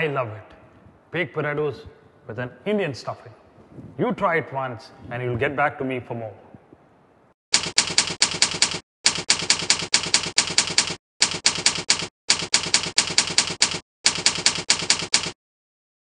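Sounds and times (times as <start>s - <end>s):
typewriter key clacks: 7.6s - 15.4s.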